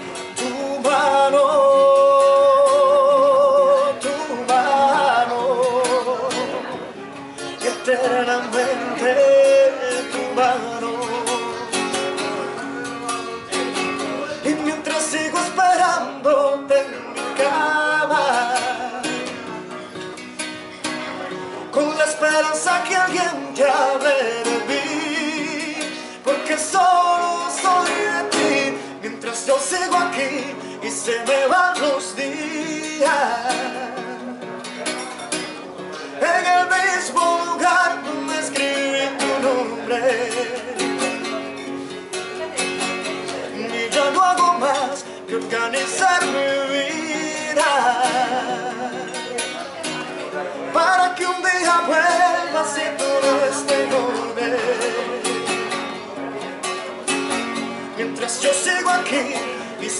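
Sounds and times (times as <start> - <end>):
person singing over guitar: 0.0 - 59.9.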